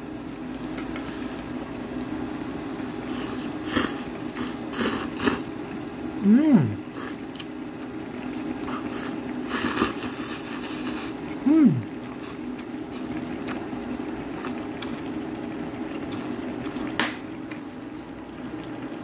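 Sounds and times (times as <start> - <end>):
pot boiling: 0.0 - 19.0
person slurping noodles: 3.1 - 5.5, 6.2 - 7.4, 8.6 - 13.6
person humming: 6.2 - 6.9, 11.4 - 12.0.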